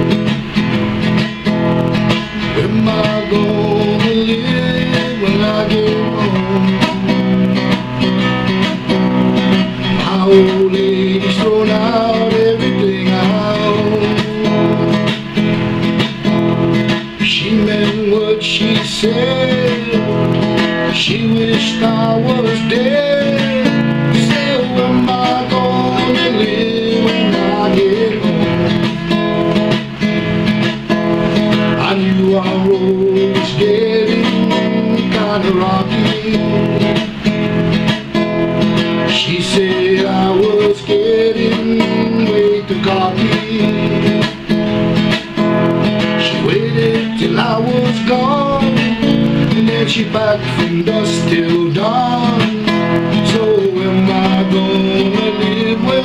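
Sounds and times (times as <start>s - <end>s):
classical guitar playing: 0.0s - 56.0s.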